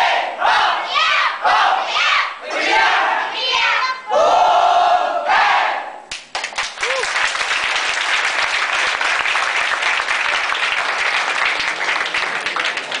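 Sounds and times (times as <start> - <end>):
crowd applauding: 6.1 - 13.0
person whooping: 6.8 - 7.2.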